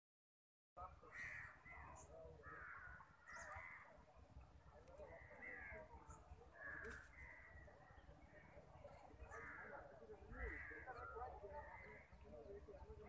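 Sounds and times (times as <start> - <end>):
crows cawing: 1.0 - 4.0, 5.1 - 5.9, 6.5 - 7.6, 9.2 - 12.2.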